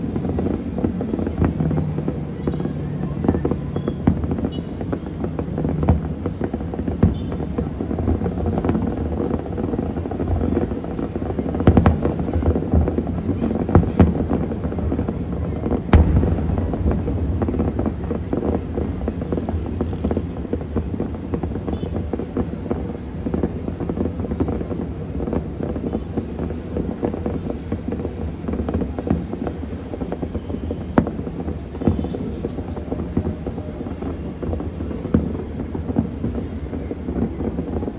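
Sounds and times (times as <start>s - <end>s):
distant fireworks popping: 0.0s - 37.9s
sharp firework bang: 15.5s - 20.3s.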